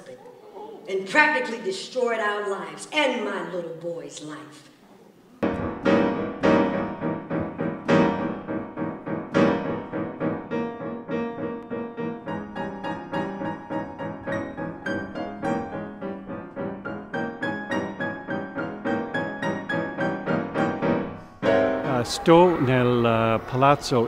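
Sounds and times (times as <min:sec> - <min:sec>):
piano music: 0:05.4 - 0:24.0.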